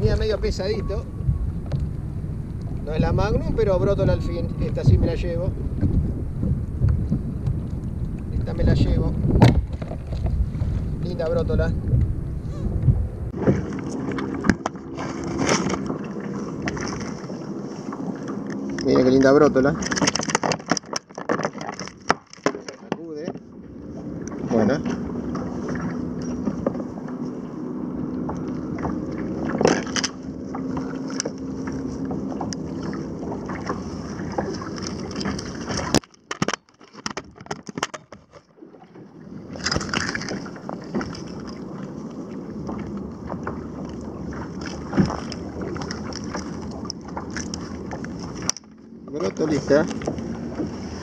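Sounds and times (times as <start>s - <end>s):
wind buffeting microphone: 0.0s - 20.9s, 23.0s - 36.0s, 39.1s - 51.0s
knocks and rustles of handling gear: 34.8s - 38.4s.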